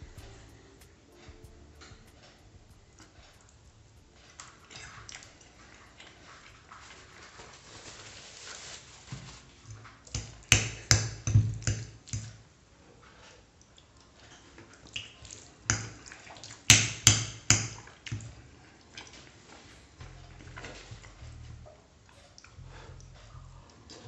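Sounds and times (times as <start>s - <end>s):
paper napkin rustling: 6.3s - 9.7s.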